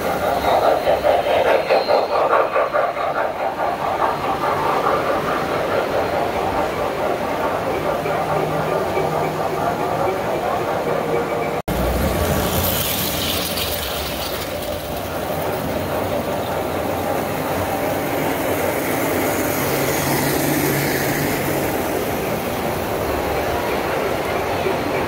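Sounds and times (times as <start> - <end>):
toy train running on track: 0.0 - 25.0.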